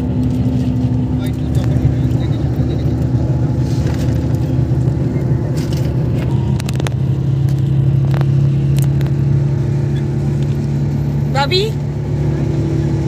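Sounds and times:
bus engine hum: 0.0 - 13.0.

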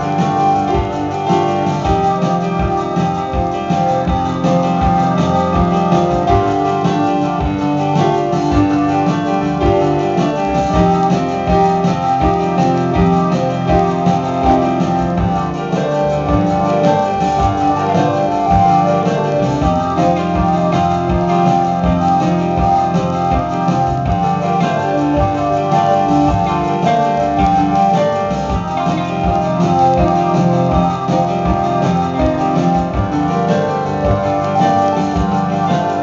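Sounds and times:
drums: 0.0 - 36.0
electric guitar: 0.0 - 36.0
keyboards: 0.0 - 36.0.

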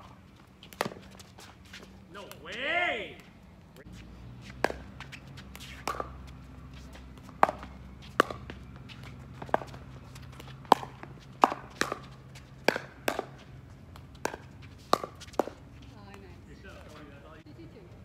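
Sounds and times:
shoes on court: 0.0 - 17.4
ball bouncing: 0.6 - 1.3, 4.5 - 17.0.

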